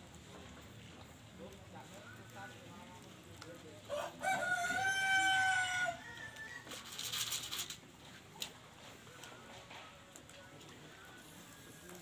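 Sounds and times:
rooster crowing: 3.9 - 6.8.

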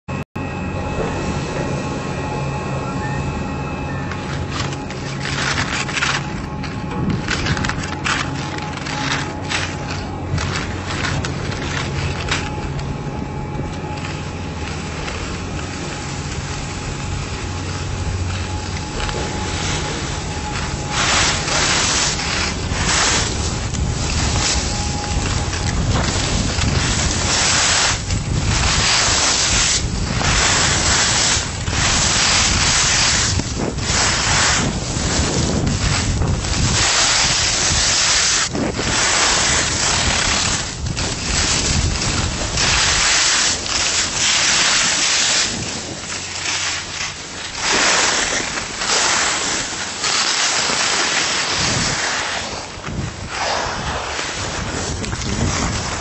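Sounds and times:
skis scraping on snow: 0.8 - 56.0
wind buffeting microphone: 5.3 - 50.0, 51.0 - 56.0.

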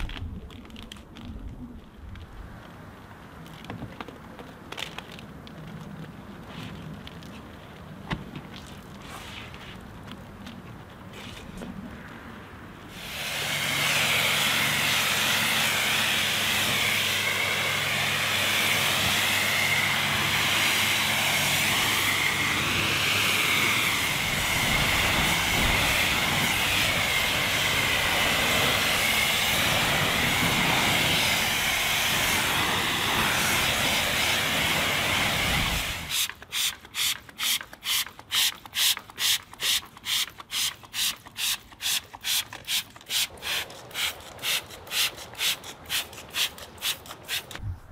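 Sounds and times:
pressure washer jet spraying: 12.9 - 47.6
short hissing strokes: 23.2 - 47.6.

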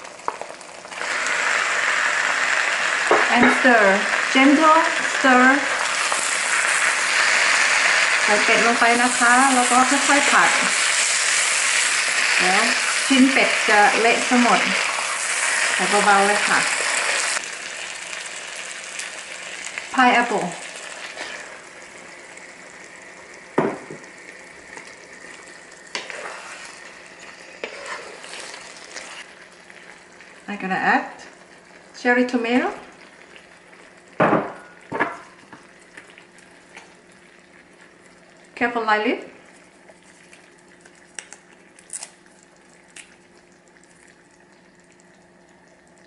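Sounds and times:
sauce sizzling in a wok: 0.0 - 41.1
sharp knocks against a wok: 23.6 - 24.0, 34.2 - 35.2
wooden spatula stirring: 26.0 - 29.3.

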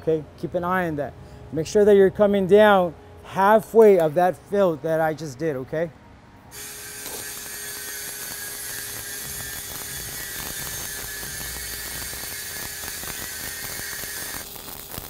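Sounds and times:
welding arc hissing and crackling: 6.5 - 15.0.

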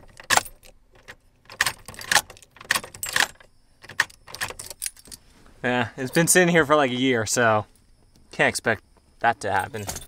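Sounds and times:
keys jangling: 0.0 - 5.2, 9.6 - 10.0.

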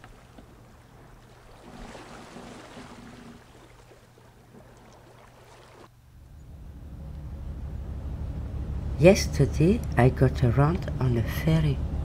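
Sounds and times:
gentle water waves: 0.0 - 6.1
low steady hum: 0.0 - 12.0.

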